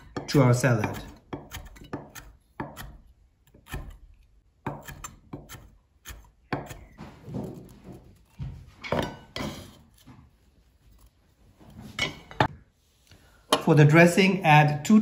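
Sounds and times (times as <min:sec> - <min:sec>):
knife chopping on wooden board: 0:00.0 - 0:08.3.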